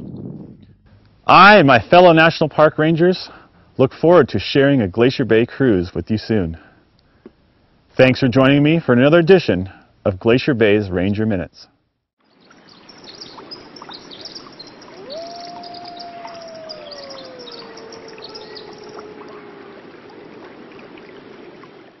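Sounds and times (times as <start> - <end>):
small birds chirping: 12.2 - 19.9
long rising and falling bird call: 12.7 - 20.6.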